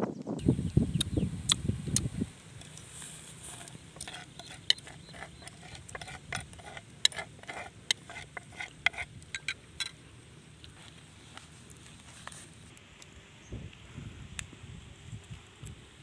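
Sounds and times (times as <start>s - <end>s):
metal spoon scraping a mortar: 2.6s - 10.0s.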